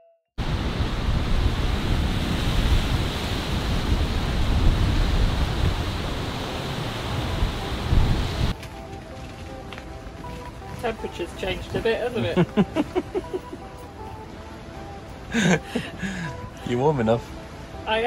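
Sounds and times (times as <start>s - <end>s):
strong wind on microphone: 0.4s - 8.6s.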